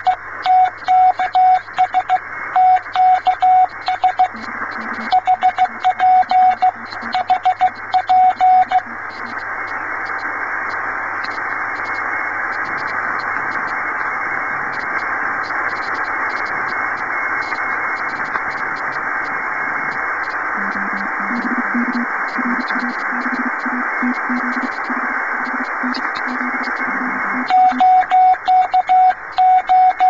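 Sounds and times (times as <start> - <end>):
faint morse code tone: 0.0 - 9.4, 20.6 - 30.0
shortwave receiver hiss: 0.0 - 30.0.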